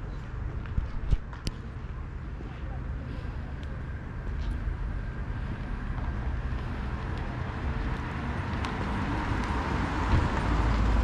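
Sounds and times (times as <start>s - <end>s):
car engine and tyre noise: 0.0s - 11.0s
wind on microphone: 7.4s - 11.0s.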